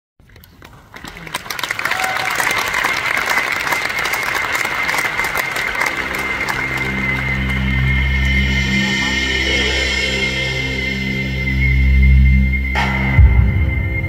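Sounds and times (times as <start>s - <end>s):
audience applauding: 0.2s - 10.3s
low sustained music notes: 3.3s - 14.0s
steady high tone: 3.5s - 14.0s.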